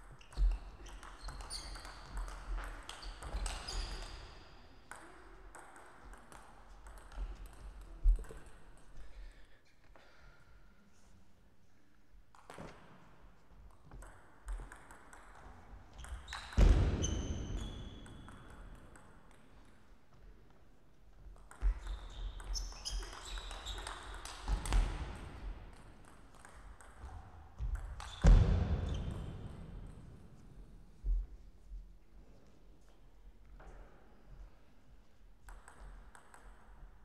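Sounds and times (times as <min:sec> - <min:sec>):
shoes squeaking on floor: 0:00.1 - 0:04.6.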